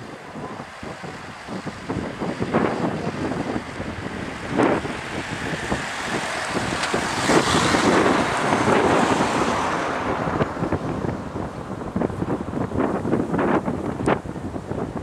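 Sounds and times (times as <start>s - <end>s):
car and cyclists passing by: 0.0s - 15.0s
wind buffeting microphone: 0.0s - 15.0s.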